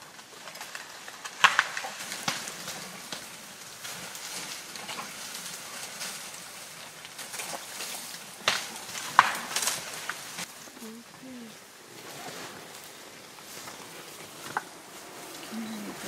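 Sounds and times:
leaves rustling: 0.0s - 16.0s
twigs cracking: 0.0s - 16.0s
branch snapping: 7.1s - 10.5s.

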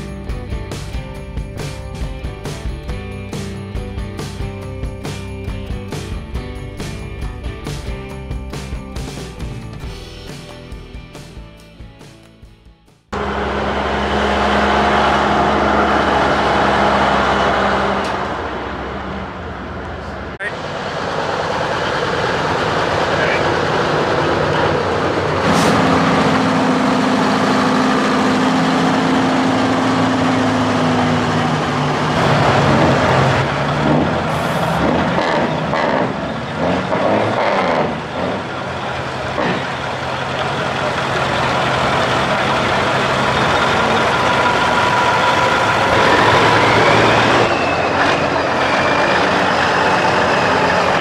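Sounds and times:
diesel truck engines passing: 13.2s - 51.0s
rising whine: 13.2s - 51.0s.

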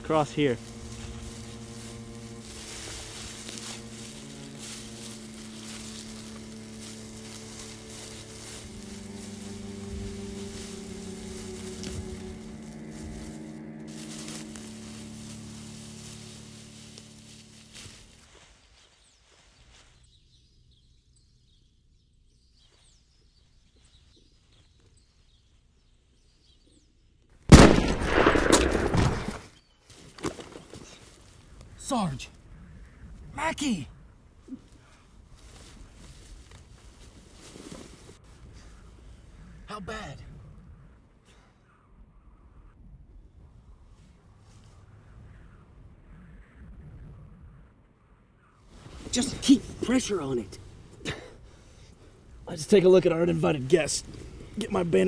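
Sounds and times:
low music drone: 0.0s - 18.4s
footsteps through dry leaves: 0.0s - 20.1s
faint bird chirps: 18.3s - 27.3s
loud rifle shot: 27.5s - 29.4s.

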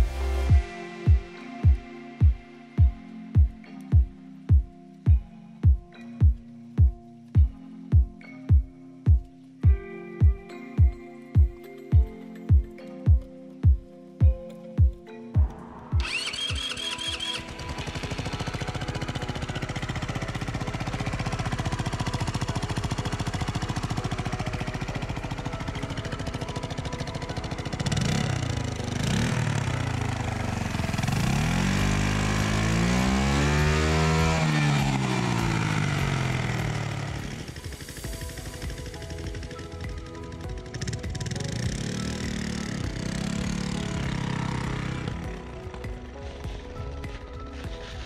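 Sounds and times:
scooter engine starting and revving: 16.0s - 48.0s.

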